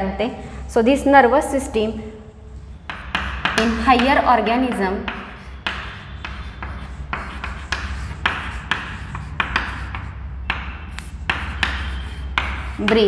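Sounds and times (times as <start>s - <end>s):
chalk scratching on chalkboard: 2.8s - 13.0s.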